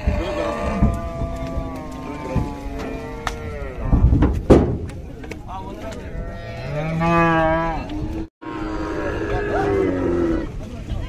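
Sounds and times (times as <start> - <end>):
cow mooing: 0.0 - 4.0, 6.2 - 10.5
heavy thumps: 2.2 - 5.2.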